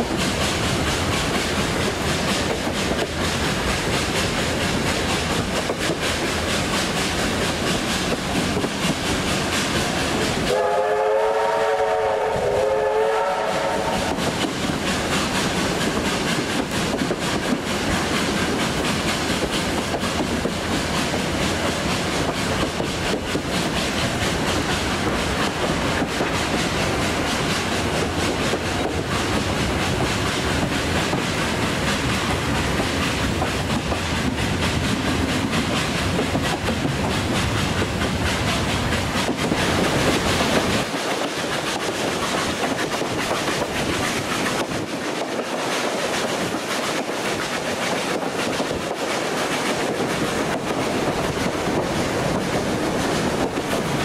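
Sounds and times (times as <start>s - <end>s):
steam train rumbling on track: 0.0s - 54.0s
locomotive whistle: 10.5s - 14.2s.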